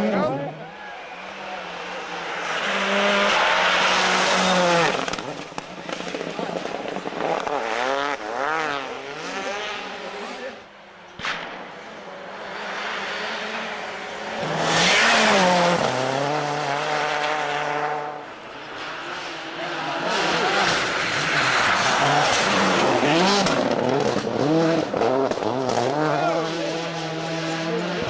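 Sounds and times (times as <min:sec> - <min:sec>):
rally car engine passing: 0:00.0 - 0:28.0.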